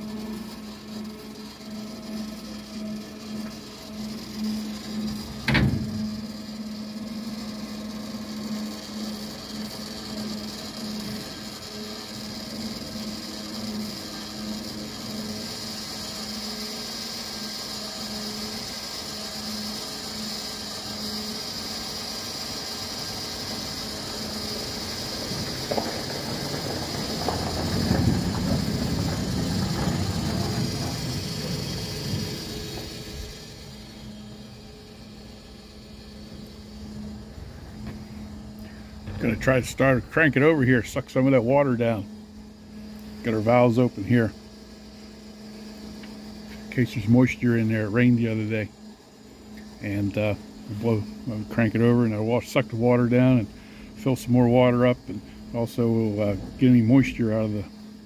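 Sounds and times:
engine knocking and clattering: 0:00.0 - 0:17.1, 0:21.1 - 0:33.5
fuel pump humming with whine: 0:00.0 - 0:58.0.

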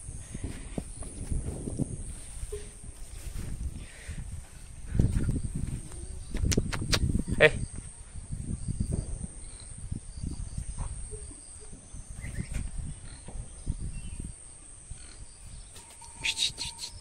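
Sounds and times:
crickets shrilling: 0:04.9 - 0:17.0
high chirps: 0:15.8 - 0:17.0.

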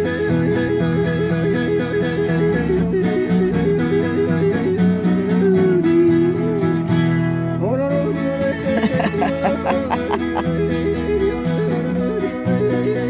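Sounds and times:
acoustic guitar: 0:00.0 - 0:13.0
person yodeling: 0:08.4 - 0:10.6.

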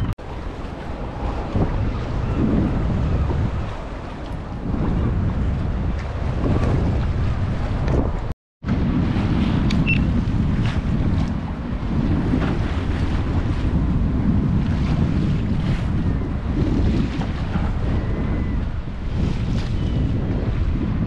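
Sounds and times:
sea wash: 0:00.0 - 0:21.0
wind buffeting microphone: 0:00.0 - 0:21.0.

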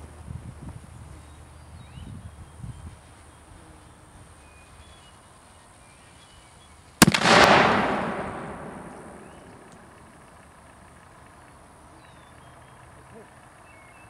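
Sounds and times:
cannon blast: 0:07.0 - 0:10.1
loud echo: 0:07.0 - 0:10.1
second crack: 0:07.0 - 0:10.1.

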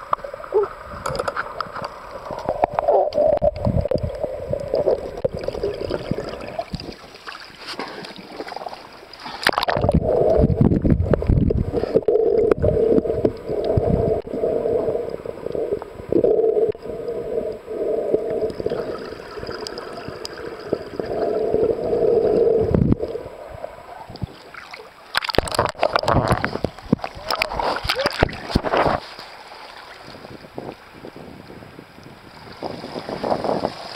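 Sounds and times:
water rushing underwater: 0:00.0 - 0:30.5.

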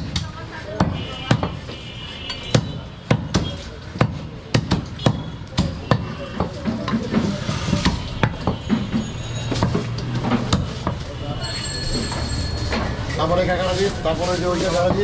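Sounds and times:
cleaver chopping meat on wood: 0:00.8 - 0:01.6, 0:02.5 - 0:08.8.

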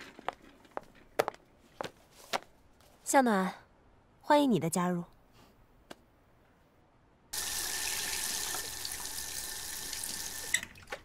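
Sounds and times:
tap water running into sink: 0:07.4 - 0:11.0.

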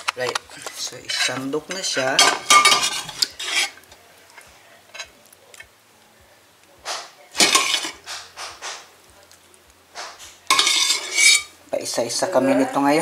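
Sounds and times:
metal ladle scraping metal pot: 0:00.5 - 0:04.0, 0:07.4 - 0:08.8, 0:10.0 - 0:11.6.

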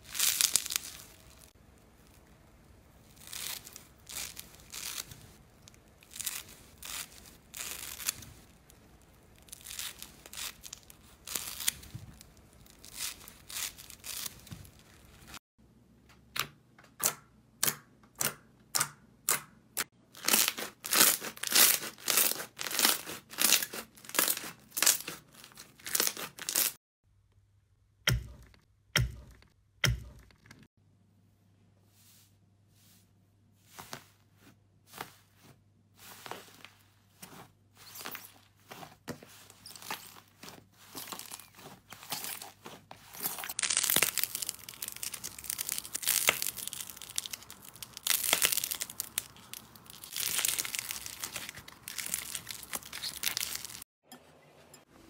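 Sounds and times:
slime squishing: 0:00.0 - 0:15.4, 0:20.2 - 0:26.8, 0:37.8 - 0:53.8.

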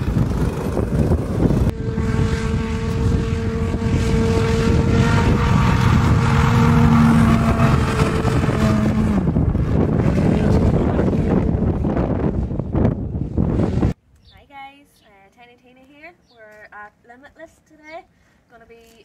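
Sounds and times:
hovercraft engine and fan drone: 0:00.0 - 0:14.0
wind on the microphone: 0:00.0 - 0:14.0.

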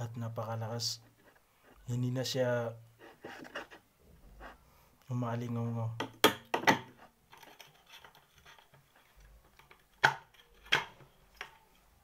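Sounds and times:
faint small metal clatter: 0:06.6 - 0:11.9.

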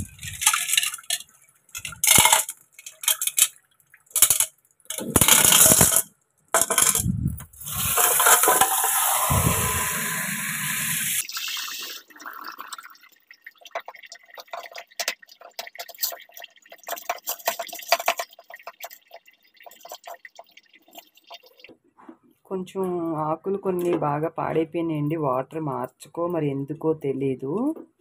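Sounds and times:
pebbles clinking in a glass bowl: 0:00.0 - 0:09.0
tap water running: 0:06.8 - 0:21.7.

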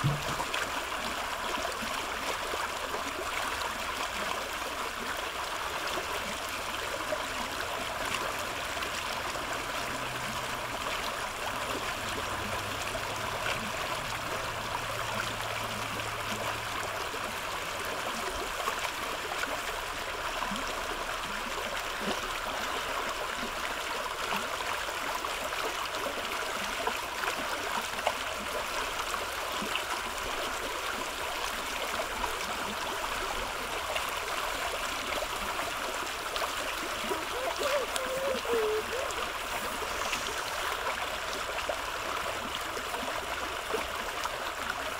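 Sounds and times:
brook running over rocks: 0:00.0 - 0:44.9.

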